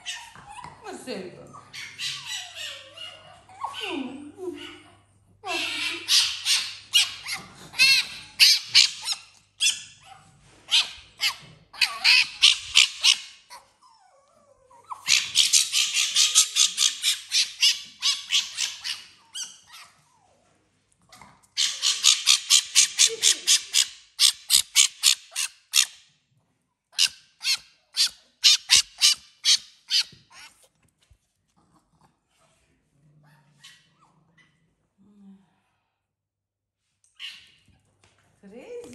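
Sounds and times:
small animal chattering cries: 27.0 - 30.1.

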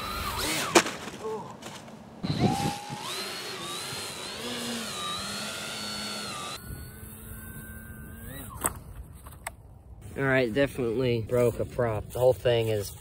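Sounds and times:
electric motor and propeller whining: 0.0 - 0.8, 2.2 - 9.5.

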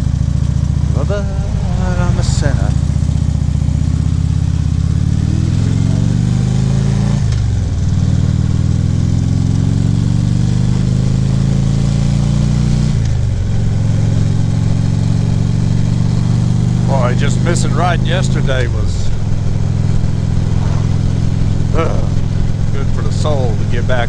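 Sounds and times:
motorcycle engine accelerating: 0.0 - 24.0
wind rushing: 19.5 - 22.8.

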